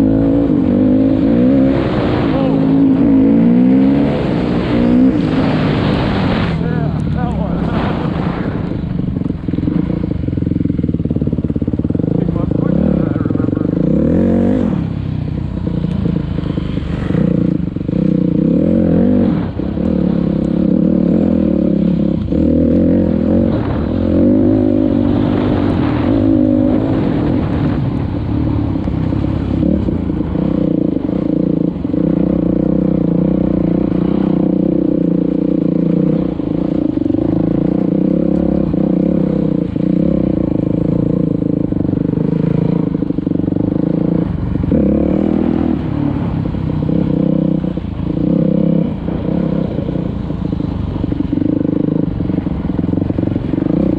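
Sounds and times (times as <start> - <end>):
dirt bike engine revving: 0.0 - 53.9
knocks and clatter over rough ground: 23.0 - 30.6.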